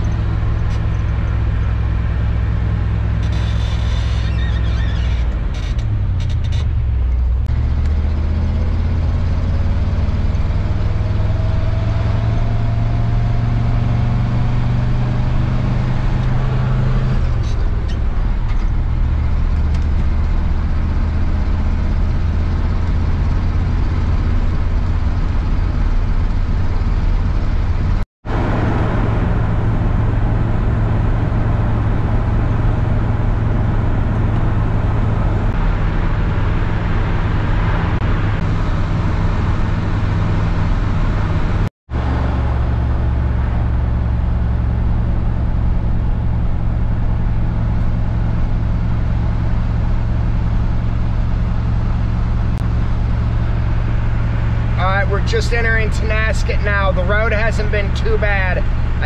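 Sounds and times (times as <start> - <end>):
car engine and tyre drone: 0.0 - 59.0.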